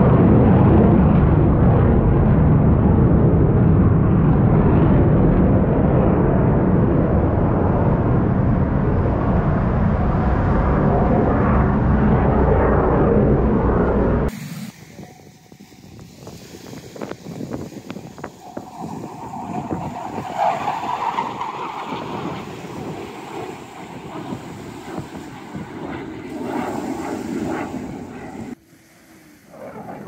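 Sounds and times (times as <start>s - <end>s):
distant jet aircraft: 0.0s - 30.0s
wind buffeting microphone: 0.0s - 30.0s
waves lapping: 23.6s - 30.0s.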